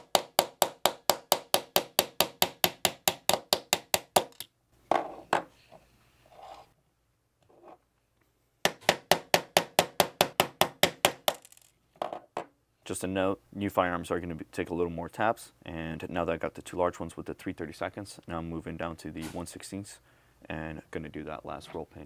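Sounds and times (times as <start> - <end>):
knocks and handling sounds: 0.0 - 6.8, 7.4 - 9.4, 10.1 - 12.6.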